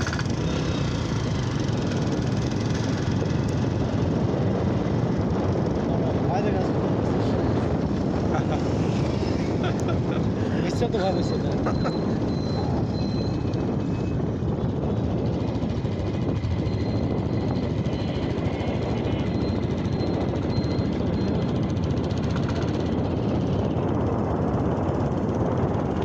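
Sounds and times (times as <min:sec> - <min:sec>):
motorcycle engine rumble: 0:00.0 - 0:26.0
wind buffeting microphone: 0:00.0 - 0:26.0.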